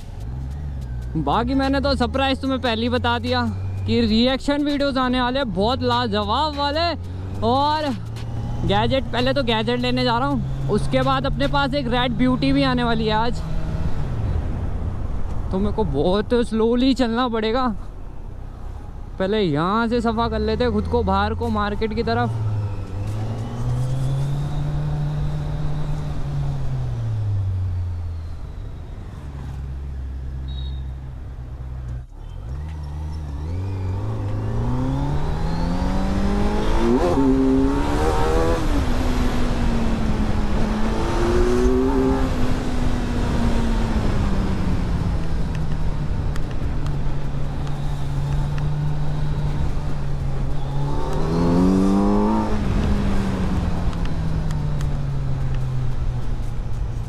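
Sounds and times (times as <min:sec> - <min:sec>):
motorcycle engine revving: 0:20.3 - 0:27.7, 0:32.2 - 0:56.3.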